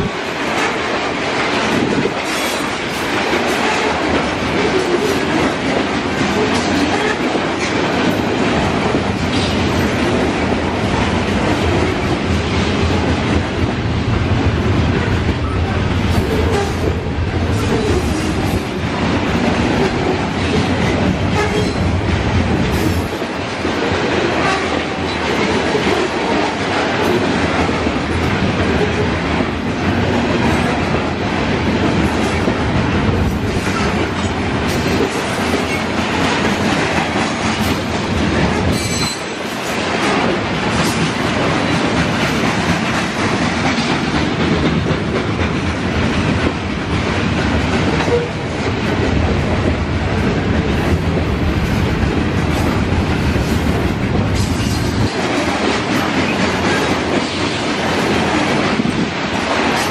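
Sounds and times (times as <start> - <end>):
freight train rumbling past: 0.0 - 59.9
wheels clickety-clack on rails: 0.0 - 59.9
train wheels squealing: 38.8 - 39.4.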